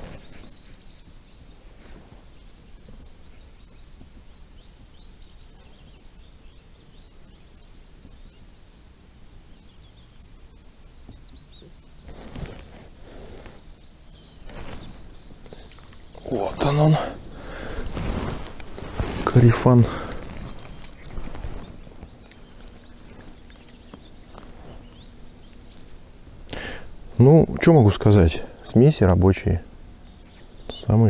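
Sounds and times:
short rustle: 0:00.0 - 0:01.0, 0:12.0 - 0:13.8, 0:14.4 - 0:26.0
low background noise: 0:00.0 - 0:31.0
small birds chirping: 0:00.0 - 0:31.0.

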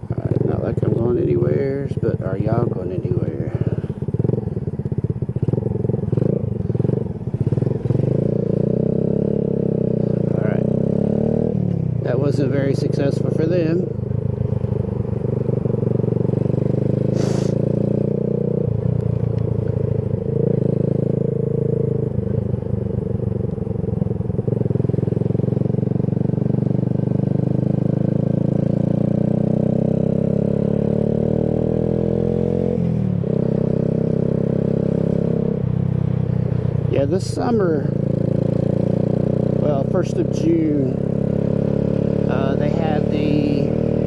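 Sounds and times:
motorcycle engine revving: 0:00.0 - 0:44.0
short hiss: 0:17.2 - 0:17.6.

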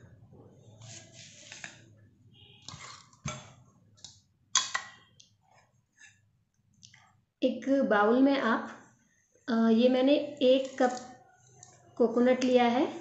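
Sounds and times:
dishes and utensils handled: 0:02.6 - 0:03.7.

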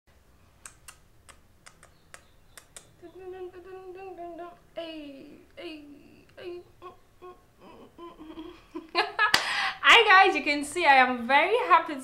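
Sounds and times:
sharp clicks: 0:00.6 - 0:02.9
woman humming a tune: 0:03.0 - 0:09.0.

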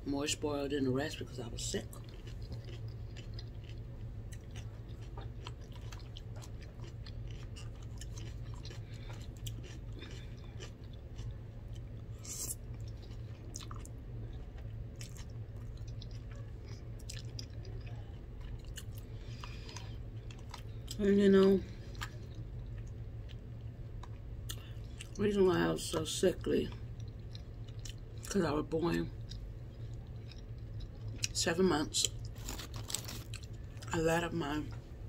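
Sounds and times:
low room hum: 0:00.0 - 0:35.0
person chewing: 0:01.7 - 0:25.2, 0:26.4 - 0:28.4, 0:29.1 - 0:31.4, 0:32.0 - 0:33.9.

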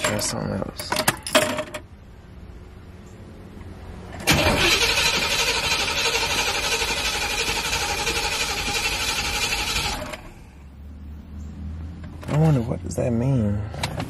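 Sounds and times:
starter motor cranking: 0:04.2 - 0:10.2.

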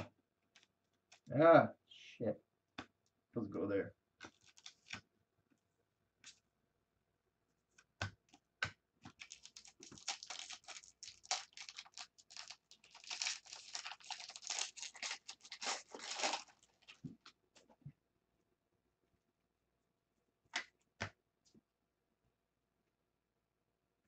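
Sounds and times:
foil wrapper tearing and crinkling: 0:04.3 - 0:04.9, 0:09.1 - 0:17.0.

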